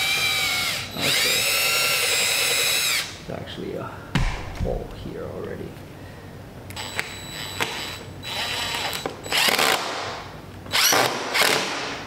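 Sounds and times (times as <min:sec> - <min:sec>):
cordless drill driving screw: 0:00.0 - 0:03.1, 0:06.8 - 0:09.8, 0:10.7 - 0:11.6.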